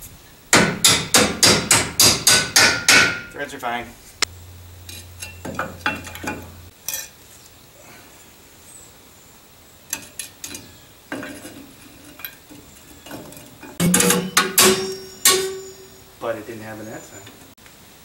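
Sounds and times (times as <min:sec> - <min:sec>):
metal tools clinking: 0:04.9 - 0:07.2, 0:09.9 - 0:16.2.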